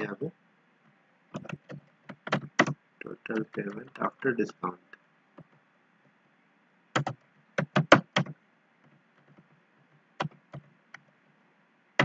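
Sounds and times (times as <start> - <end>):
computer keyboard typing: 1.3 - 4.1, 7.0 - 9.6, 10.2 - 11.1.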